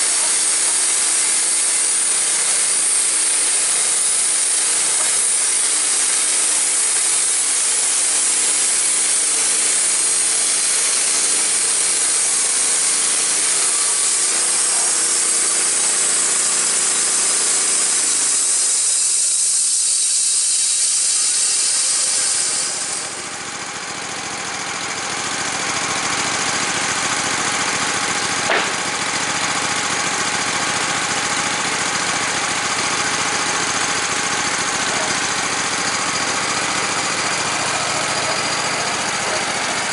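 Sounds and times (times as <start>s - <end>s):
bandsaw blade hissing through log: 0.0s - 23.4s, 27.8s - 29.4s
sawmill engine running: 0.0s - 39.9s
sharp click: 28.5s - 28.9s.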